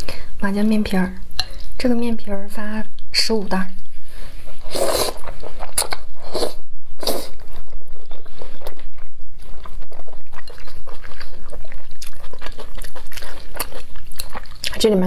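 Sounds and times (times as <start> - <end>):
wet noodle slurps: 4.6 - 8.8
wet chewing and lip smacking: 7.1 - 15.0.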